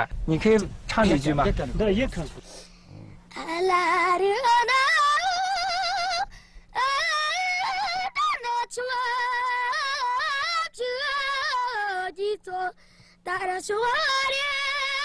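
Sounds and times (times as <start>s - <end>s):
boy singing unaccompanied: 3.3s - 15.0s.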